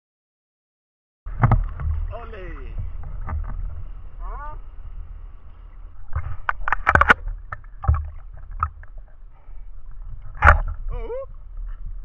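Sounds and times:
low rumble: 0:01.3 - 0:12.0
sea water sloshing: 0:01.3 - 0:12.0
sharp water splashes: 0:05.9 - 0:11.1.

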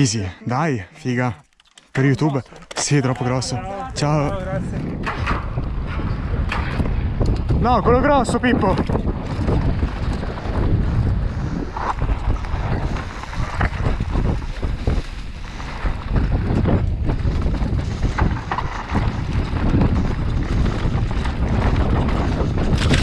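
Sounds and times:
tyres rumbling on dirt: 0:02.3 - 0:23.0
wind buffeting microphone: 0:02.9 - 0:23.0
bike knocking and rattling: 0:04.3 - 0:23.0.

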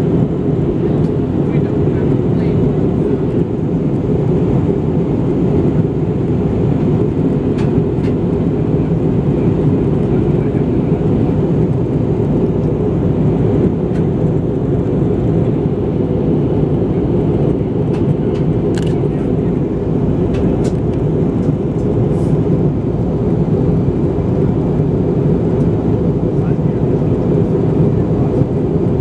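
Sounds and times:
airflow and engine rush: 0:00.0 - 0:29.0.

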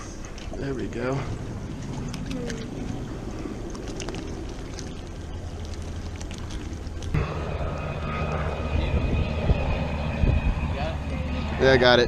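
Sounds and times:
motor rumbling: 0:00.0 - 0:12.0
loud hum switching on: 0:07.2 - 0:12.0.

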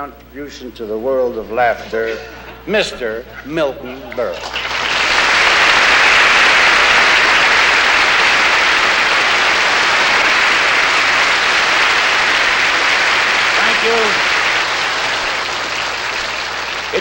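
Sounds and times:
audience applauding: 0:04.3 - 0:17.0.

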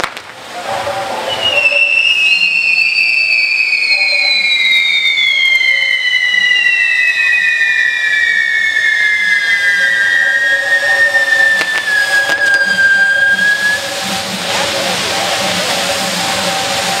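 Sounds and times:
sharp firework cracks: 0:00.0 - 0:00.8, 0:11.2 - 0:15.2
whistling firework: 0:00.0 - 0:17.0.

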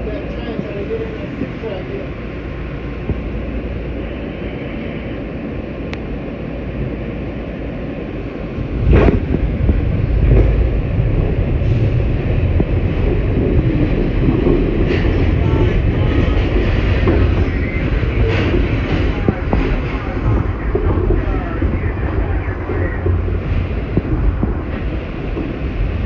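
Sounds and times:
subway car rumble: 0:00.0 - 0:26.0
train jolting: 0:08.6 - 0:26.0.

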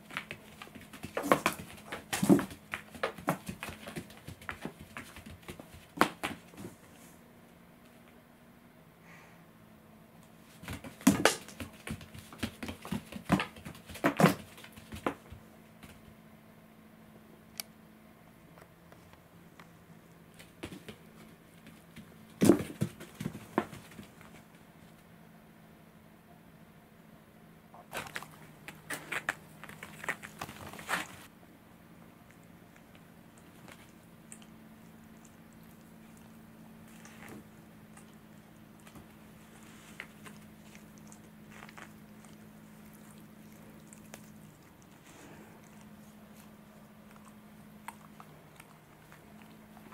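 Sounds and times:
cat paws scrabbling on mats: 0:00.0 - 0:07.1, 0:10.4 - 0:16.1, 0:20.4 - 0:24.6, 0:27.8 - 0:31.3
faint steady hum: 0:00.0 - 0:49.9.

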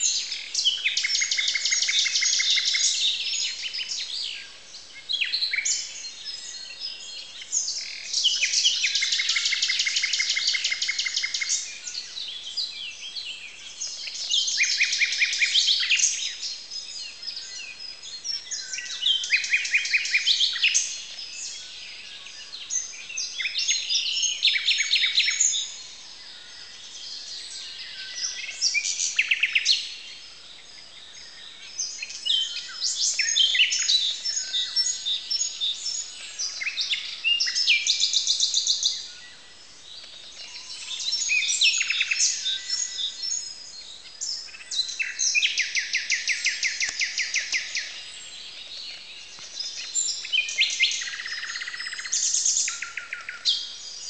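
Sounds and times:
nightingale singing loud phrases: 0:00.0 - 0:54.0
songbirds singing: 0:00.0 - 0:54.0.

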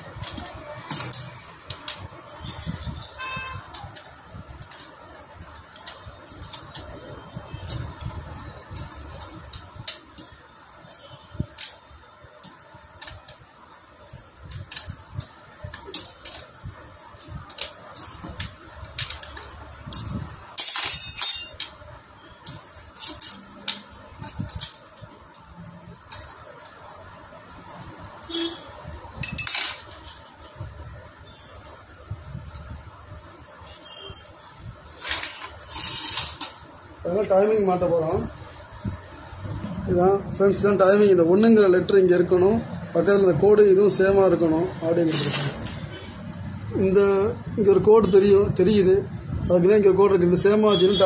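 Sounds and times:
metal tools clinking: 0:19.0 - 0:21.8, 0:22.8 - 0:24.8, 0:29.2 - 0:30.2, 0:35.0 - 0:36.6, 0:45.0 - 0:45.9.

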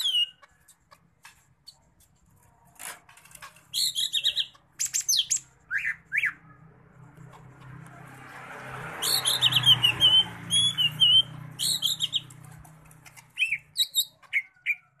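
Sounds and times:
bird chirping and twittering: 0:00.0 - 0:01.0, 0:03.6 - 0:06.5, 0:08.9 - 0:15.0
wings fluttering in cage: 0:11.5 - 0:14.4.

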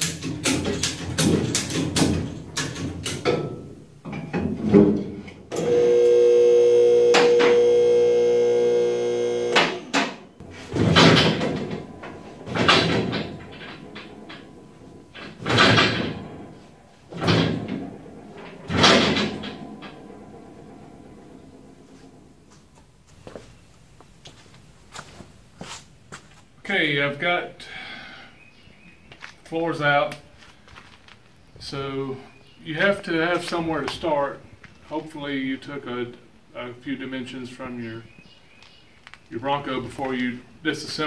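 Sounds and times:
metal clicks and creaks: 0:10.4 - 0:22.4
metal scraping: 0:10.4 - 0:22.6.

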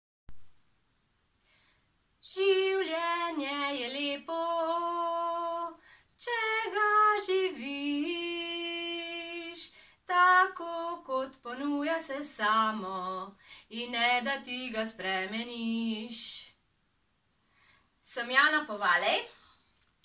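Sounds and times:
woman singing unaccompanied: 0:02.2 - 0:16.6.

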